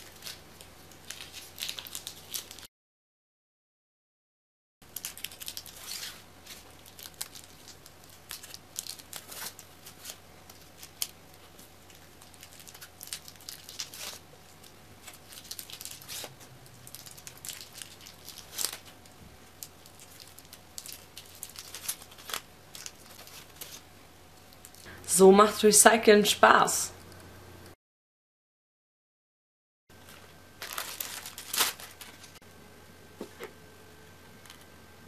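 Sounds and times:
fabric rustling and crinkling: 29.9 - 32.4.

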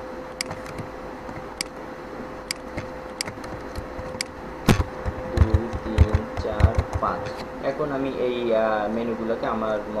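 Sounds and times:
faint electrical hum: 0.0 - 10.0
computer mouse clicks: 0.4 - 1.7, 2.5 - 7.5
keyboard key presses: 0.4 - 1.7, 2.5 - 7.4.

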